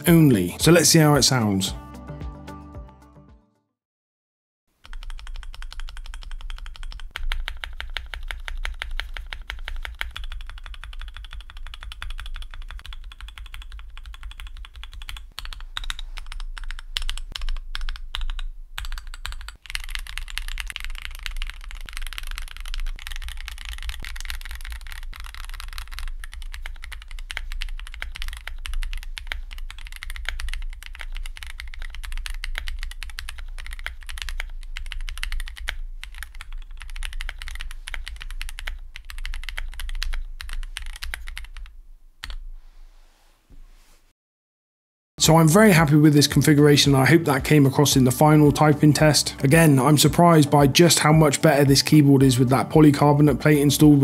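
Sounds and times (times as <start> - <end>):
fast typing on mechanical keyboard: 4.8 - 42.4.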